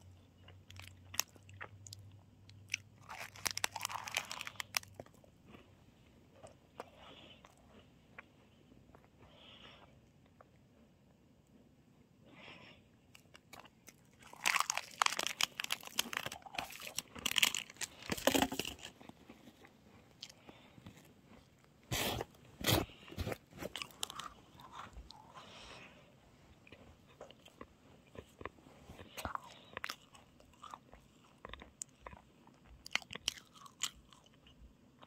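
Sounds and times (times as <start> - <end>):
crunchy snack crunching: 0.2 - 5.7, 13.1 - 25.8, 26.6 - 34.6.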